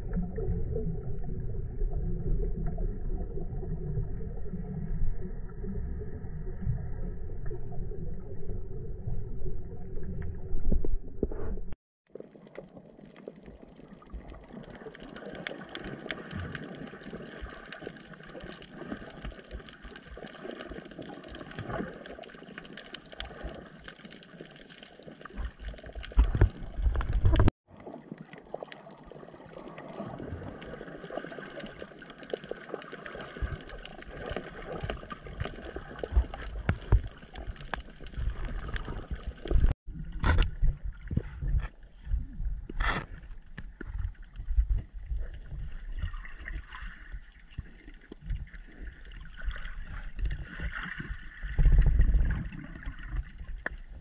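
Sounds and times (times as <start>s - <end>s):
low surges of water movement: 0.0s - 11.2s, 12.1s - 54.0s
muffled low underwater rumble: 0.0s - 11.8s, 33.4s - 54.0s
water hiss with crackling clicks: 12.2s - 27.5s, 28.1s - 40.4s.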